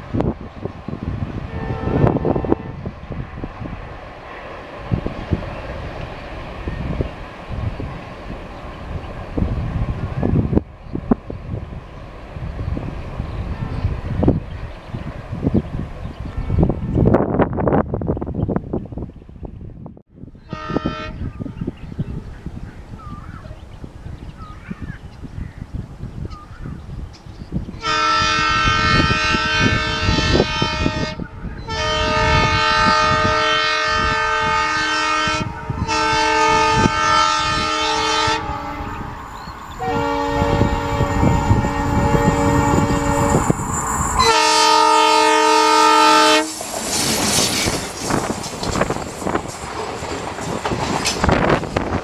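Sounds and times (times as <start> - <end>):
engine and train rumble on track: 0.0 - 52.0
locomotive air horn blasts: 1.5 - 2.9, 20.5 - 21.6, 27.8 - 39.1, 39.8 - 43.5, 44.2 - 46.6.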